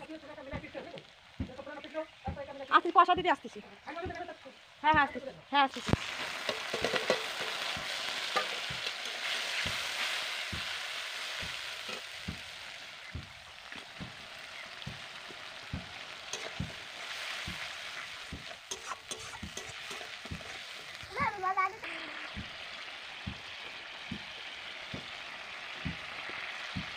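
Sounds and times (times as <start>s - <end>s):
onions sizzling in hot oil: 0.0s - 26.9s
metal spatula scraping a pan: 5.9s - 10.2s, 16.3s - 17.3s, 17.9s - 20.9s.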